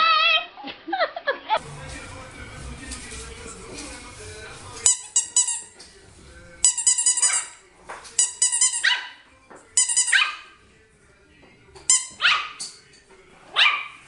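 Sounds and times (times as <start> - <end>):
dog barking high-pitched: 8.8 - 9.2, 10.1 - 10.5, 12.2 - 12.6, 13.6 - 14.0.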